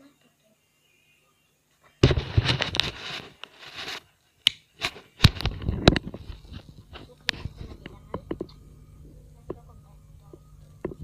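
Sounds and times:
microphone handling noise: 0:02.0 - 0:04.0, 0:04.8 - 0:08.6.

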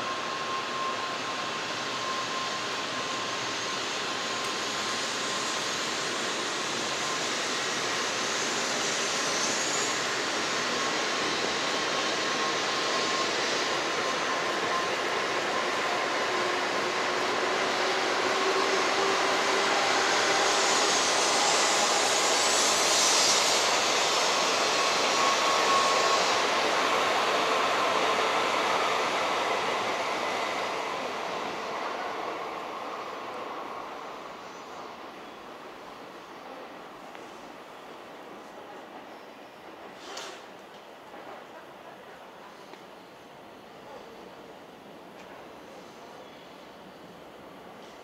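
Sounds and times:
train station rushing noise: 0:00.0 - 0:48.0.

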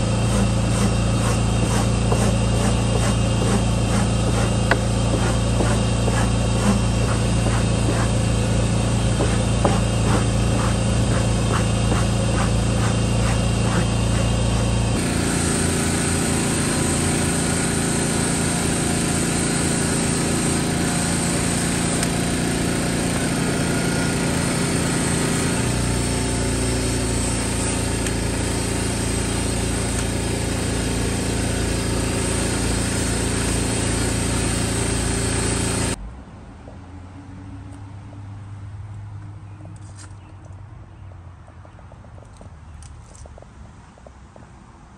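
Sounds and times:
rubber tool scraping carpet: 0:00.0 - 0:17.4
drill brush scrubbing floor mat: 0:00.0 - 0:36.0
motor hum: 0:00.0 - 0:36.0.

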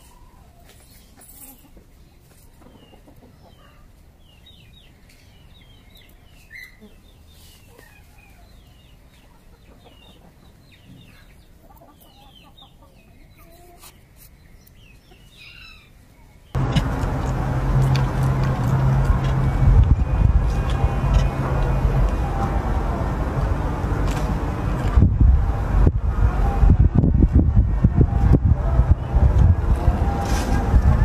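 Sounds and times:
high chirping calls: 0:02.2 - 0:16.8
loud steady rushing noise: 0:16.6 - 0:31.0
low hum: 0:16.6 - 0:31.0.

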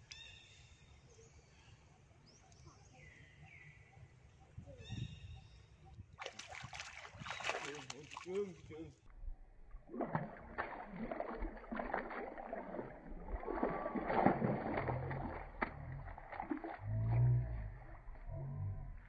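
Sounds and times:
water splashing and sloshing: 0:06.2 - 0:19.0
low rumble: 0:09.1 - 0:19.0.

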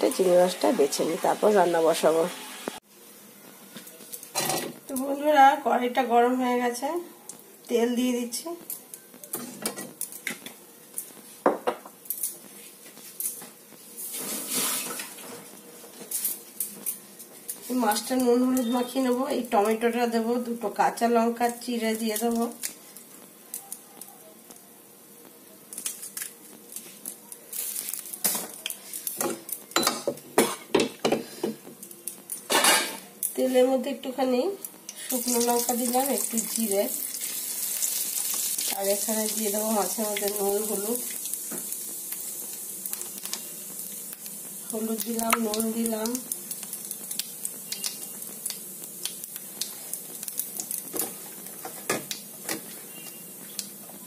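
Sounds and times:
spices sizzling in hot oil: 0:00.0 - 0:54.0
metal utensils and lids clattering: 0:32.4 - 0:33.0.

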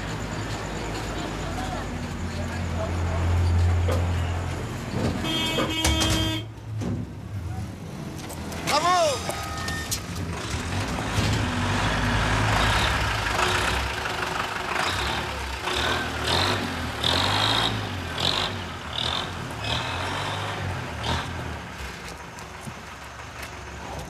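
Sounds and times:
bus engine running: 0:00.0 - 0:24.0.

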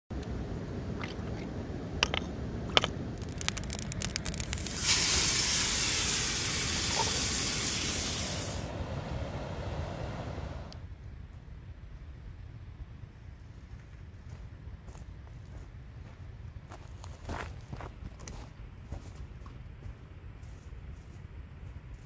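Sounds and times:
running water: 0:00.9 - 0:08.7
fire pops and crackles: 0:02.7 - 0:07.1
steak sizzling in frying pan: 0:04.0 - 0:08.5.

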